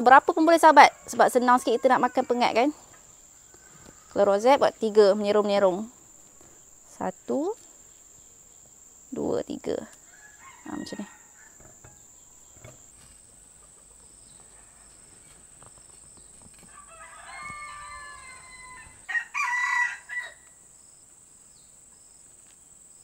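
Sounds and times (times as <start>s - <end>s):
rooster crowing: 0.8s - 2.8s, 10.0s - 12.6s, 16.6s - 20.6s.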